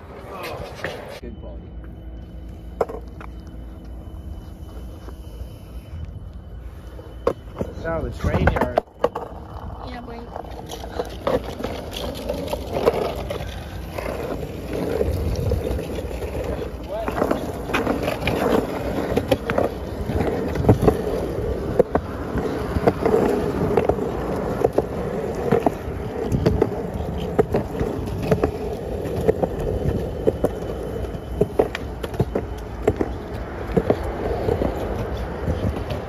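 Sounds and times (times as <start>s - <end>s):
skateboard wheels rumbling on concrete: 0.0s - 1.2s, 1.8s - 36.0s
skateboard clacks: 7.2s - 36.0s.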